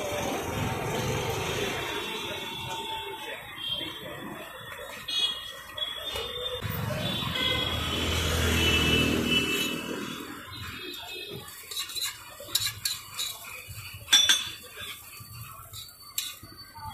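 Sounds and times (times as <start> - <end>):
metal spatula scraping griddle: 9.5 - 16.7.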